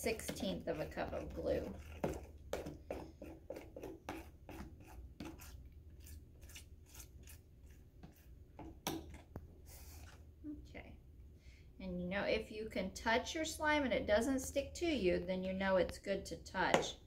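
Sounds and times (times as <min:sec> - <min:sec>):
spoon stirring slime in plastic bowl: 0:00.0 - 0:10.2.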